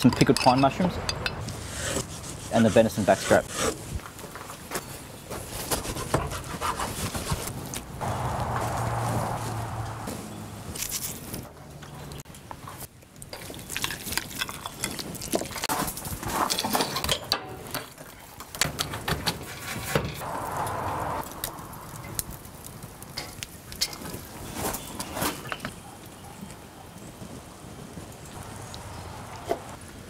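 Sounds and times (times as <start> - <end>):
kitchen utensils clinking and scraping: 13.4 - 18.0.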